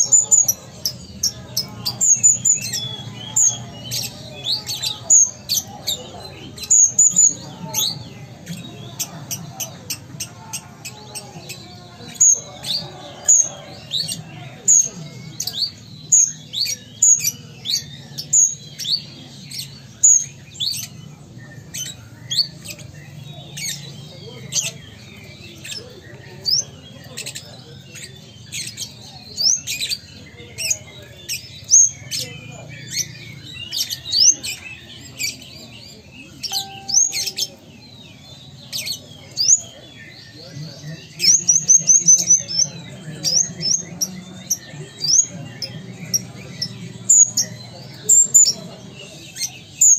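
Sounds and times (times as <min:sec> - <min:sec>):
sunbird singing: 0:00.0 - 0:49.9
sunbird chirping: 0:36.5 - 0:37.7.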